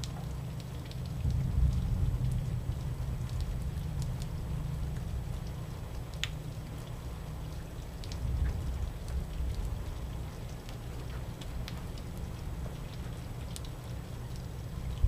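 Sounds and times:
low steady rumble: 0:00.0 - 0:15.0
steady rain falling: 0:00.0 - 0:15.0.

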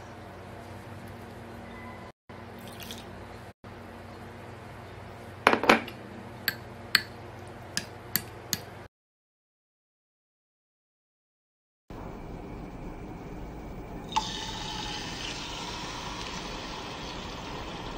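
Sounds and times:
steady low hum: 0:11.9 - 0:14.5.

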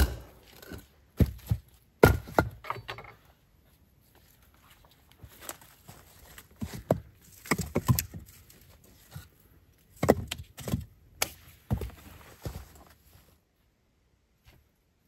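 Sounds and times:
firewood logs knocking together: 0:00.0 - 0:03.2, 0:06.6 - 0:08.3, 0:09.9 - 0:10.9
footsteps on forest floor: 0:04.1 - 0:09.3.

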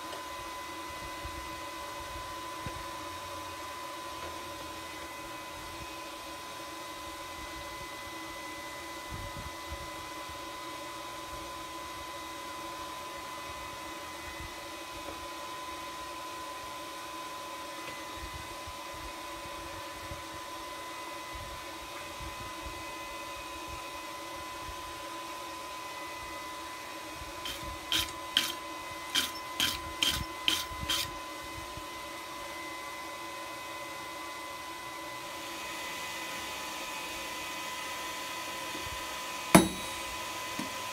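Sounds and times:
motor hum with high whine: 0:00.0 - 0:40.9
wire brush scrubbing steel: 0:27.4 - 0:31.2.

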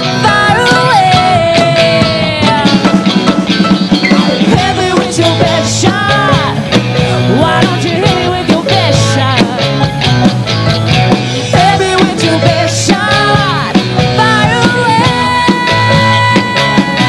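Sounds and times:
country rock band playing: 0:00.0 - 0:17.0
drums keeping a steady beat: 0:00.0 - 0:17.0
electric guitar: 0:00.0 - 0:17.0.

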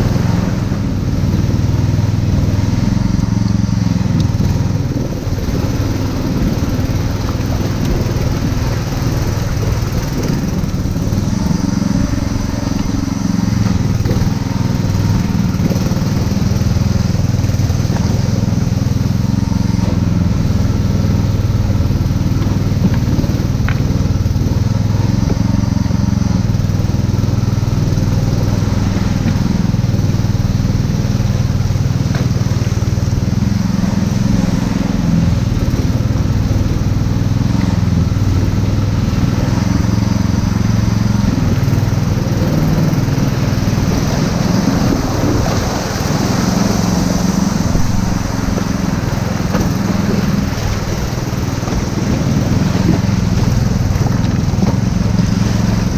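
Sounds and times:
outboard motor running: 0:00.0 - 0:55.9.

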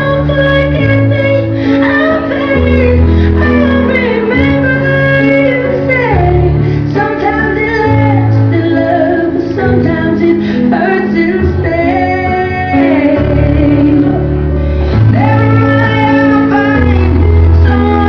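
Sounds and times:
pop song with woman singing: 0:00.0 - 0:14.2, 0:15.0 - 0:18.0.

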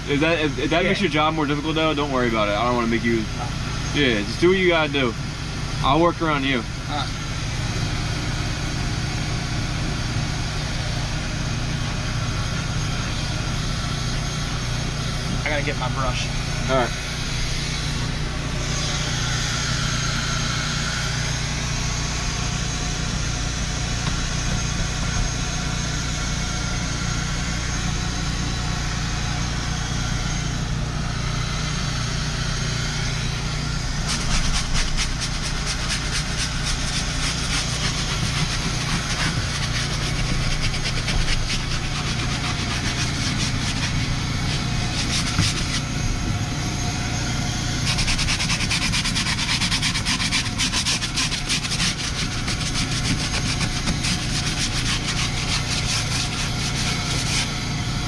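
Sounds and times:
truck engine idling: 0:00.0 - 0:58.0
brush scrubbing rubber mat: 0:34.0 - 0:45.9, 0:47.8 - 0:57.5.

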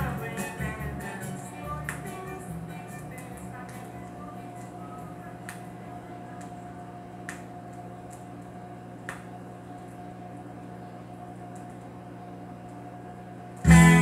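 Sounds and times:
vinyl surface hiss: 0:00.0 - 0:08.3, 0:13.6 - 0:14.0
steady hum: 0:00.0 - 0:14.0
sharp vinyl clicks: 0:01.8 - 0:02.3, 0:03.1 - 0:09.3.

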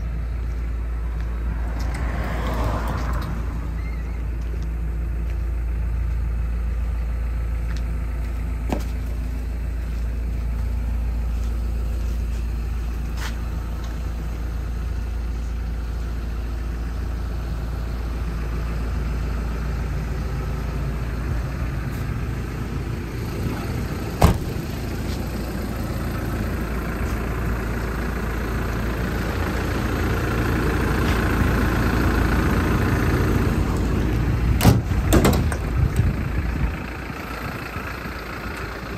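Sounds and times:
diesel engine idling: 0:00.0 - 0:38.9.

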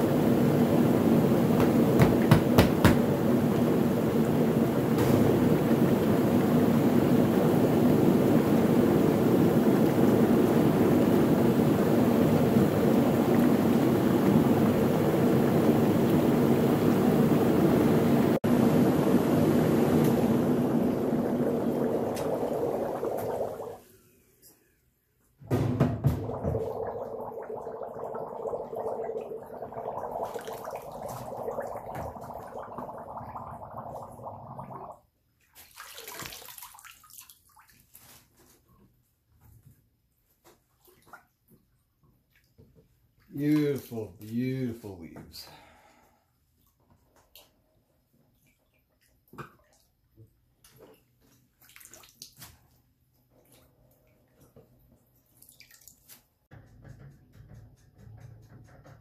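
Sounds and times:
faint blower hum: 0:00.0 - 0:23.8
air bubbling through water: 0:00.1 - 0:23.8, 0:26.2 - 0:35.0
faint water splashes: 0:26.2 - 0:38.3, 0:48.2 - 0:56.4.

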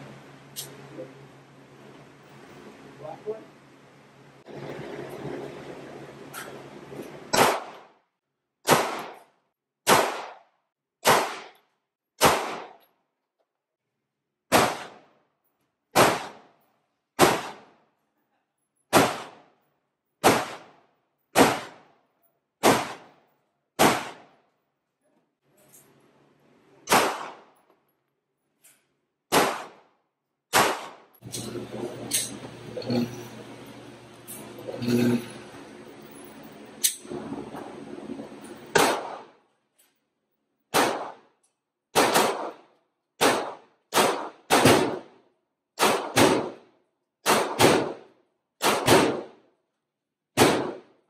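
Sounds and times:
pistol shots with ringing echo: 0:07.3 - 0:07.9, 0:08.7 - 0:11.6, 0:12.2 - 0:12.8, 0:14.5 - 0:15.1, 0:15.9 - 0:16.6, 0:17.2 - 0:17.8, 0:18.9 - 0:19.5, 0:20.2 - 0:20.8, 0:21.4 - 0:21.9, 0:22.6 - 0:23.2, 0:23.8 - 0:24.4, 0:26.9 - 0:27.6, 0:29.3 - 0:29.9, 0:30.5 - 0:31.2, 0:38.7 - 0:39.4, 0:40.7 - 0:41.3, 0:42.0 - 0:42.6, 0:43.2 - 0:45.1, 0:45.8 - 0:46.6, 0:47.2 - 0:49.4, 0:50.4 - 0:50.9.

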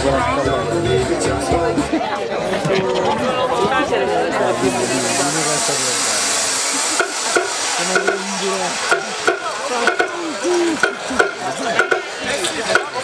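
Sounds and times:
crowd voices: 0:00.0 - 0:13.0
heavy hiss: 0:04.5 - 0:12.2.

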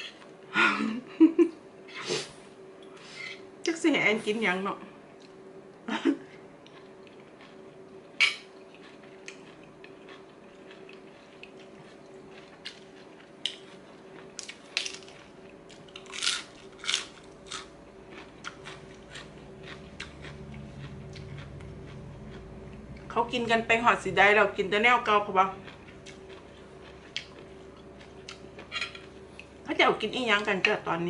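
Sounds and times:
faint steady hum: 0:00.0 - 0:31.0
person chewing and crunching: 0:06.2 - 0:23.2, 0:25.0 - 0:29.6.

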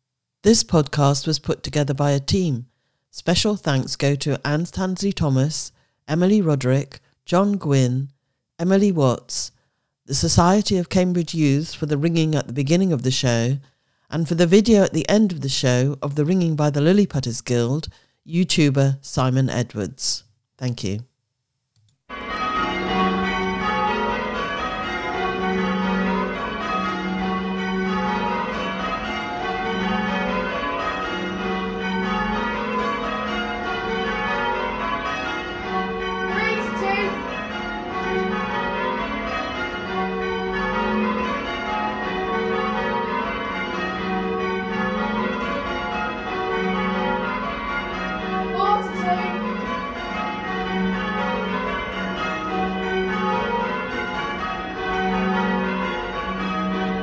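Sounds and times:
tower bells ringing: 0:22.1 - 0:57.0.

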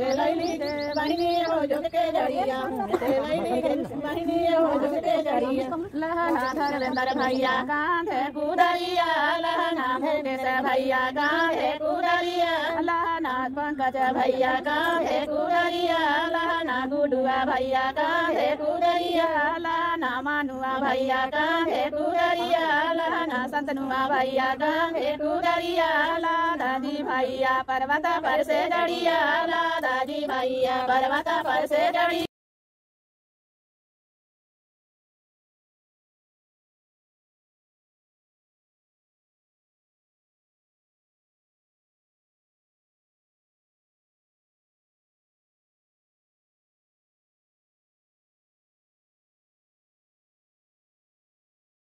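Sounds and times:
women singing unaccompanied: 0:00.0 - 0:32.3.

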